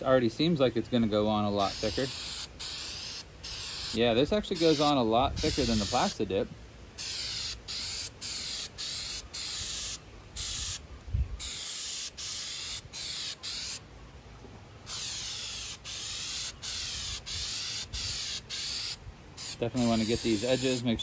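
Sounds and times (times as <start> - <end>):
aerosol can spraying: 1.6 - 4.0, 4.6 - 6.2, 7.0 - 10.8, 11.4 - 13.8, 14.9 - 20.9.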